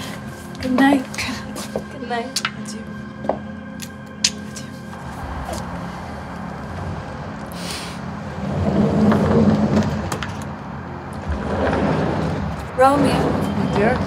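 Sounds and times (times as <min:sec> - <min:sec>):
vehicle engine rumbling: 0:00.0 - 0:14.0.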